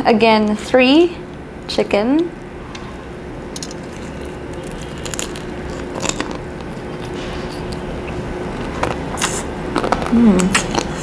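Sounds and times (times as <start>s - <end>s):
steady background noise: 0.0s - 11.0s
crunching fried chicken: 3.6s - 11.0s.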